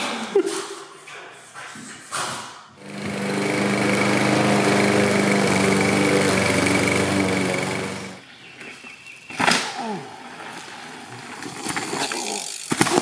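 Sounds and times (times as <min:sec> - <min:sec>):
lawn mower engine running: 0:02.8 - 0:08.2
bike squeaks and rattles: 0:11.4 - 0:13.0.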